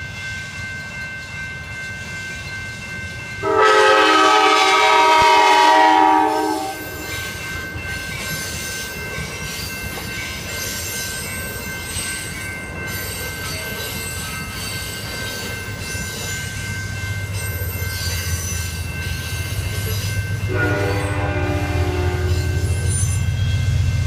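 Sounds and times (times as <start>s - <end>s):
locomotive horn: 3.4s - 6.9s, 20.5s - 22.9s
train wheel squeal: 5.2s - 24.0s.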